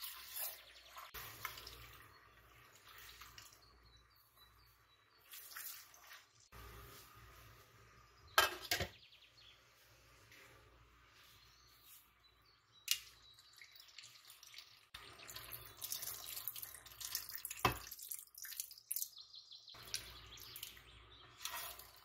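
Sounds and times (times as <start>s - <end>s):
water running and splashing: 0.0s - 3.8s, 5.2s - 6.5s, 13.4s - 19.2s, 19.8s - 22.0s.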